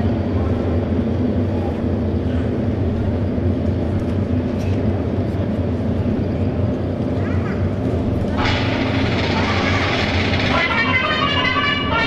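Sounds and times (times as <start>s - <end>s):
motorcycles idling: 4.5s - 12.0s.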